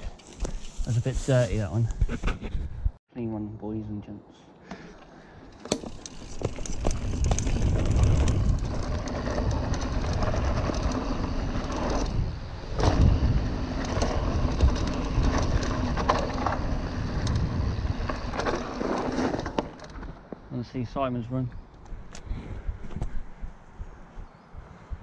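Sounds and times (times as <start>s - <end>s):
tyres rumbling over dirt: 5.6s - 20.1s
wind buffeting microphone: 6.2s - 18.6s.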